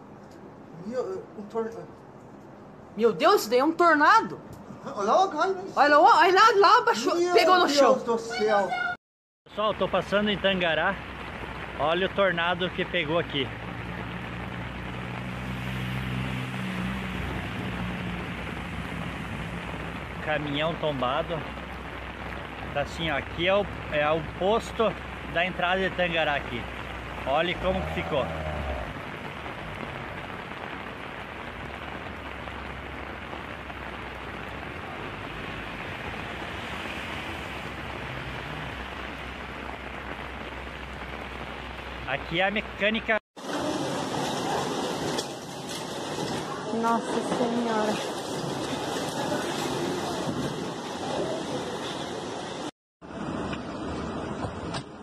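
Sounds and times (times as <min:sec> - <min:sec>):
rain on a wet road: 0:09.5 - 0:55.0
vehicle engine drone: 0:09.8 - 0:42.0.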